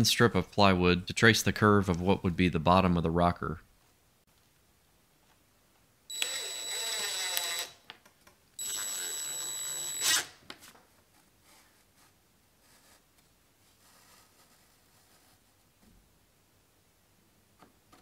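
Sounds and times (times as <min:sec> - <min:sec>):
impact driver whining: 0:06.1 - 0:07.8, 0:08.6 - 0:10.3.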